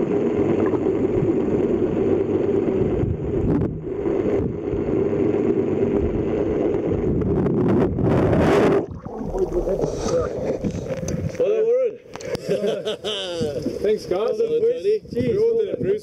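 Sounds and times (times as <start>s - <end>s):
muffled boat engine drone: 0.0s - 11.4s
rushing splashing water: 8.4s - 11.0s.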